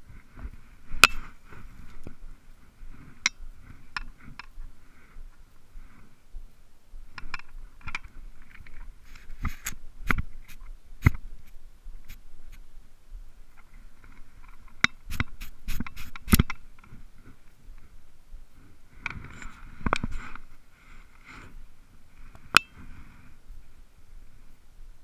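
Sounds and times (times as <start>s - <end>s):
handling noise scrapes and knocks: 0.0s - 4.6s, 7.2s - 11.2s, 19.0s - 20.5s.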